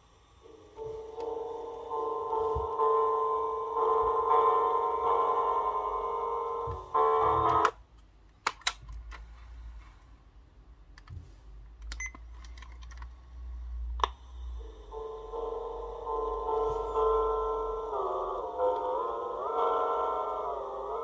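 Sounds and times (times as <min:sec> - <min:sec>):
speaker playing musical tones: 0:00.4 - 0:07.8, 0:14.6 - 0:21.0.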